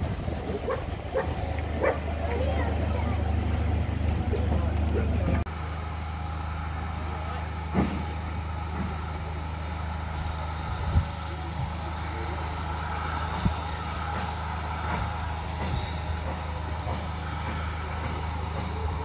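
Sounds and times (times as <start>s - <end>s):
train carriage rumbling on track: 0.0s - 19.0s.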